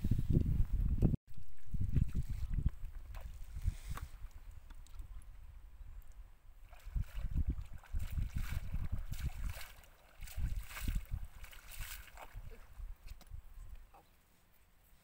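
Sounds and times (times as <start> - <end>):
wind buffeting microphone: 0.0 - 13.8
feet splashing through muddy water: 1.3 - 5.2, 6.6 - 13.2.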